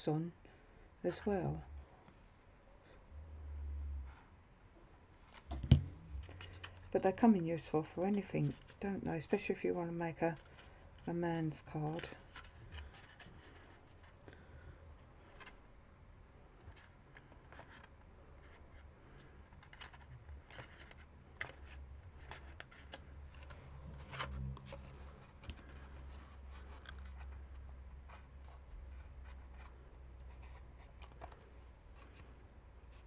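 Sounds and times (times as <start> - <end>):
low hum: 1.6 - 6.9
card folding clicks and rustles: 5.2 - 6.9, 10.3 - 11.1, 12.0 - 15.8, 16.5 - 33.0.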